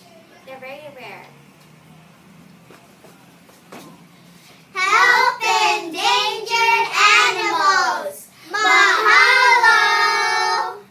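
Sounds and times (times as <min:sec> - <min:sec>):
young girls singing: 0:04.8 - 0:10.9.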